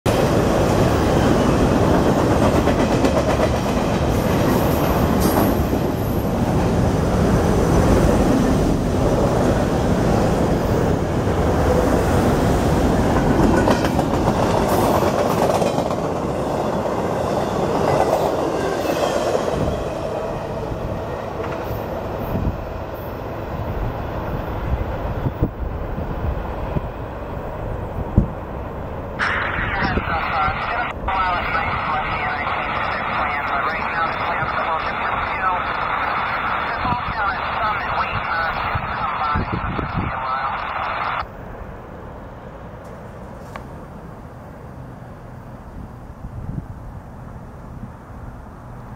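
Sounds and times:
train wheels clacking on rails: 0:01.2 - 0:05.7.

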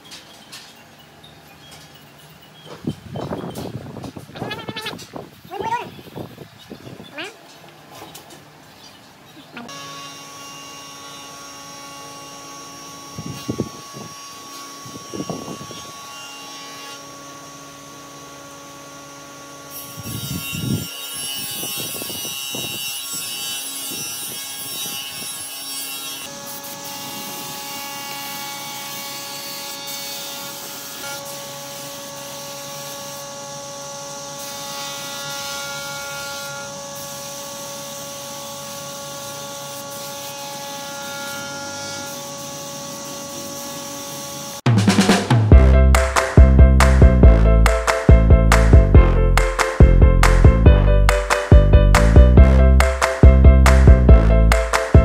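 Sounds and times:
woodworking power tool running: 0:09.7 - 0:48.6.

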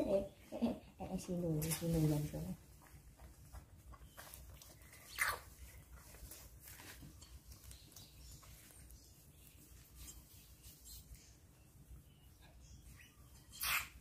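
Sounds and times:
faint rustling: 0:00.9 - 0:12.0
baby monkey squeaking: 0:12.9 - 0:14.0.

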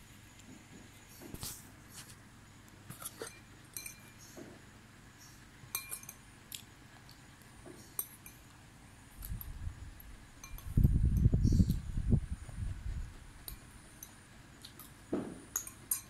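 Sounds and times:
faint clicks and clinks: 0:03.0 - 0:04.4, 0:05.7 - 0:06.7, 0:10.4 - 0:11.8, 0:13.4 - 0:16.0.

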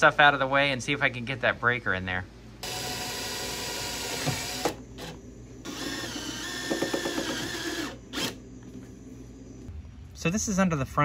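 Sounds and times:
cordless drill running: 0:02.6 - 0:08.4.

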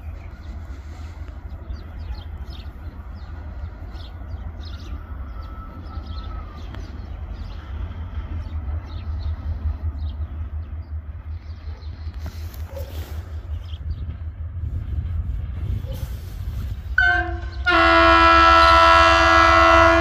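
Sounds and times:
small birds chirping: 0:00.0 - 0:14.4
steady low rumble: 0:00.0 - 0:17.7.

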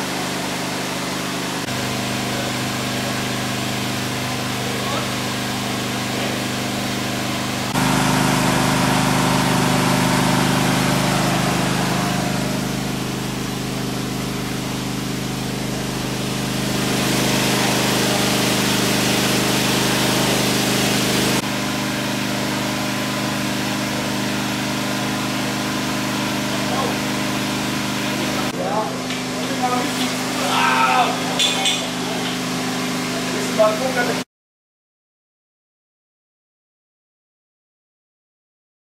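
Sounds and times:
heavy diesel engines idling: 0:07.6 - 0:16.8.

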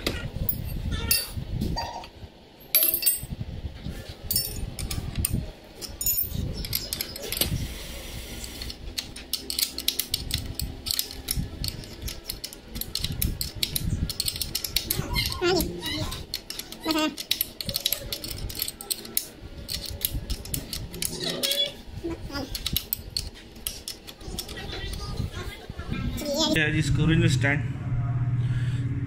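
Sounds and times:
metallic clicks and rattles: 0:04.3 - 0:07.6, 0:08.4 - 0:25.2.

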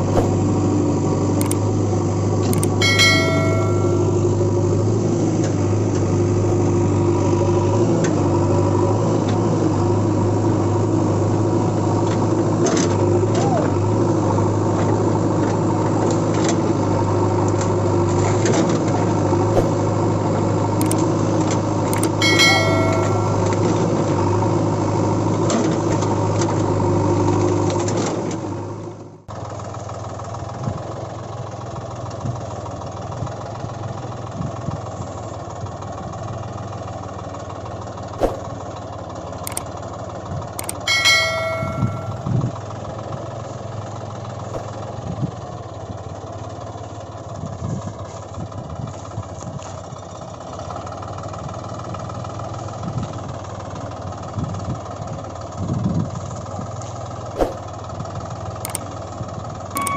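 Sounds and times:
engine-like running hum: 0:00.0 - 0:59.9
short bell-like chimes: 0:02.6 - 0:04.4, 0:22.0 - 0:23.9, 0:40.6 - 0:42.4.

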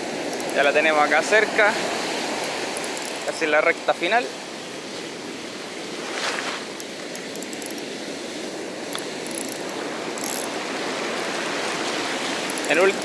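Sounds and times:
fishing reel clicking: 0:00.2 - 0:00.7, 0:02.4 - 0:03.4, 0:06.8 - 0:07.9, 0:08.9 - 0:10.5, 0:12.4 - 0:13.0
surf breaking: 0:08.5 - 0:13.0.

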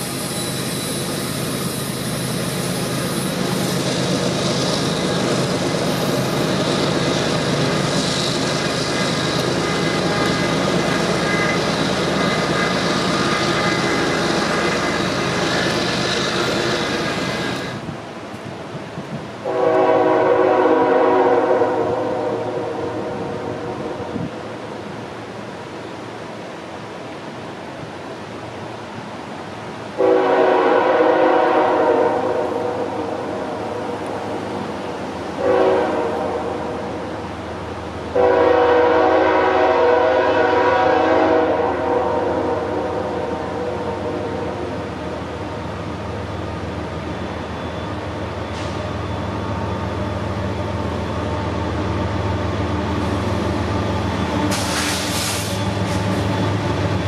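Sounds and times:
locomotive engine rumble: 0:00.0 - 0:19.4, 0:43.2 - 0:57.0
locomotive air horn blasts: 0:19.4 - 0:24.2, 0:30.0 - 0:33.0, 0:35.4 - 0:36.8, 0:38.1 - 0:44.6
brief hiss: 0:48.4 - 0:49.0, 0:54.4 - 0:56.3.

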